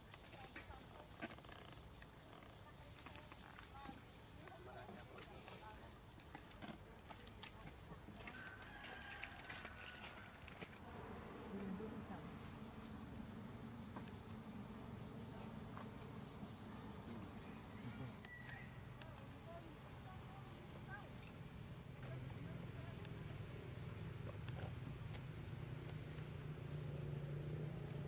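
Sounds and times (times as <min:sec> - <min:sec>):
faint outdoor background: 0:00.0 - 0:28.0
high-pitched insect drone: 0:08.3 - 0:28.0.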